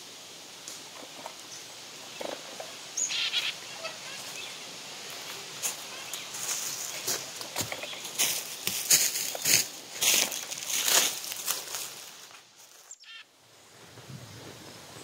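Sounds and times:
footsteps crunching dry leaves: 3.2 - 13.0.

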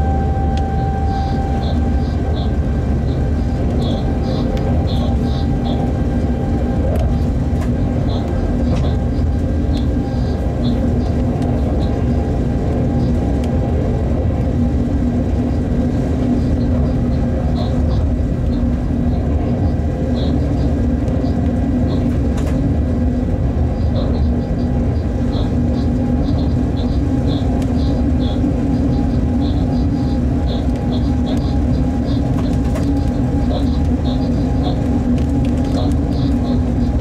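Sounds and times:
tonal hum: 0.0 - 6.5
locomotive running rumble: 0.0 - 37.0.

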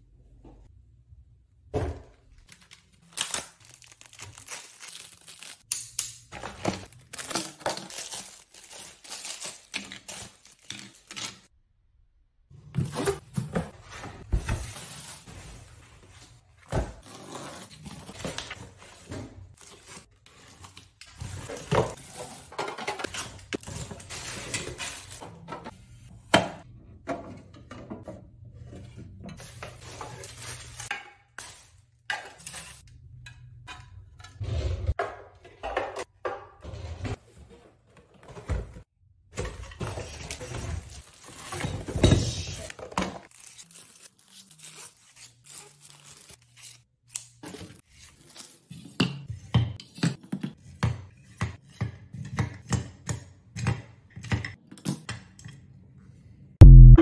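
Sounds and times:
packaging rustling and crinkling: 2.5 - 5.7, 6.4 - 11.3
hard plastic items clattering: 18.1 - 25.7.

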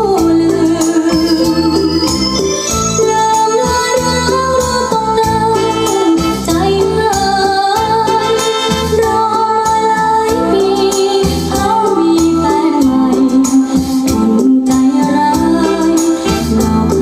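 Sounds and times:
person singing: 0.0 - 17.0
organ-like chords: 0.9 - 3.3.

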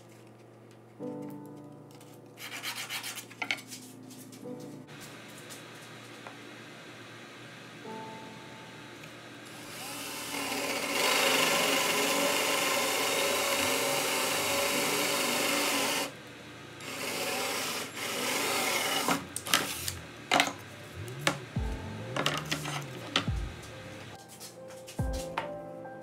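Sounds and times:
cordless drill boring particleboard: 9.5 - 16.1, 16.8 - 20.5.

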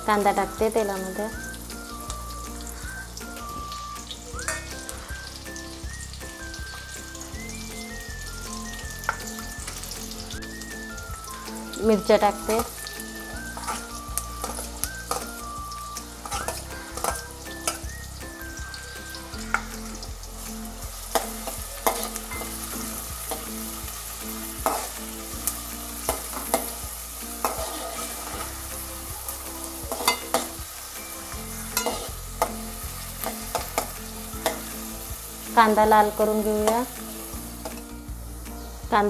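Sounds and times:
onions sizzling in hot oil: 0.0 - 39.0
metal spatula scraping a pot: 4.5 - 4.8, 13.6 - 15.3, 16.2 - 17.8, 27.4 - 28.5, 29.9 - 30.5, 31.4 - 32.6.

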